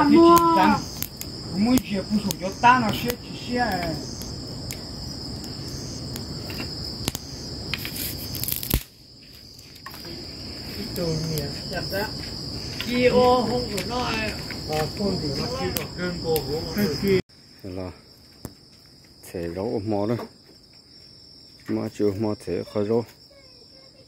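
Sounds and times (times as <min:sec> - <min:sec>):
people talking: 0:00.0 - 0:00.9, 0:01.6 - 0:04.0, 0:10.8 - 0:12.2, 0:12.8 - 0:18.0, 0:21.7 - 0:24.0
crickets chirping: 0:00.0 - 0:24.0.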